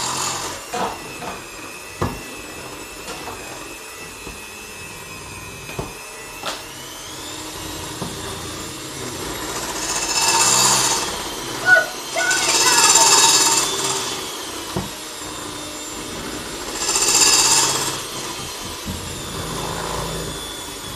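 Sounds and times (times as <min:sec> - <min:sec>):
electric mixer whine: 0:00.0 - 0:20.9.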